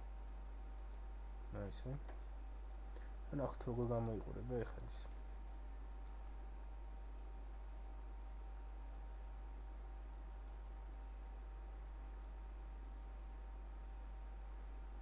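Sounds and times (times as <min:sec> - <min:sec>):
low electrical hum: 0:00.0 - 0:15.0
computer mouse clicks: 0:00.2 - 0:01.1, 0:03.9 - 0:06.2, 0:07.0 - 0:07.3, 0:08.8 - 0:09.1, 0:10.0 - 0:10.6.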